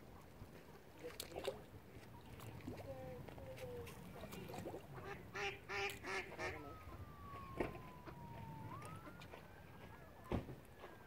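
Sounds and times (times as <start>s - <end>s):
duck quacking: 5.0s - 6.6s.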